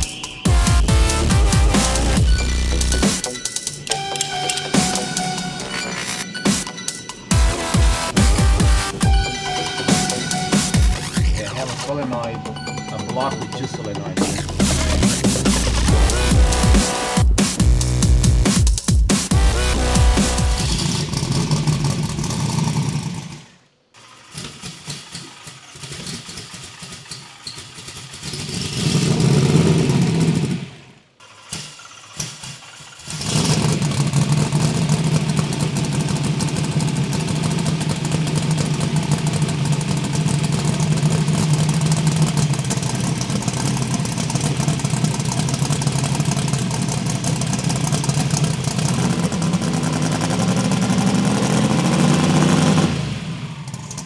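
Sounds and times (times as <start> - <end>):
car engine running: 0.0 - 3.4, 7.3 - 12.3, 13.6 - 54.0
engine burst: 19.3 - 38.3.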